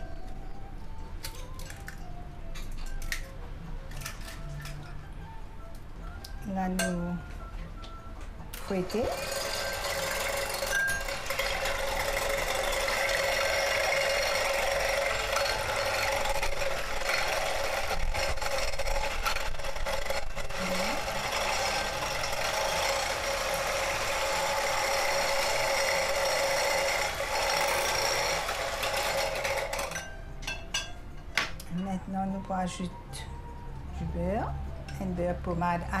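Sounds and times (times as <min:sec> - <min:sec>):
electric hand mixer whisking: 0:08.8 - 0:30.1.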